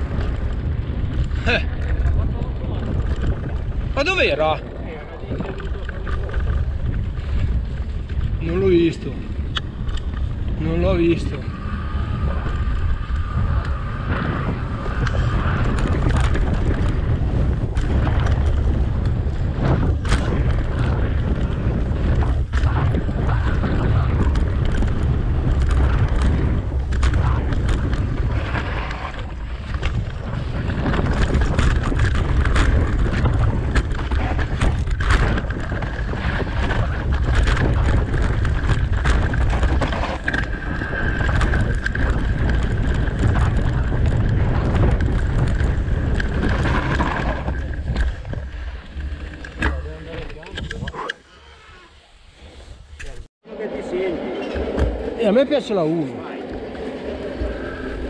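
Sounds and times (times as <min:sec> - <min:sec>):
tyre rumble on dirt trail: 0:00.0 - 0:51.0
bike rattles and knocks: 0:00.0 - 0:51.1
wind noise on microphone: 0:00.0 - 0:53.3.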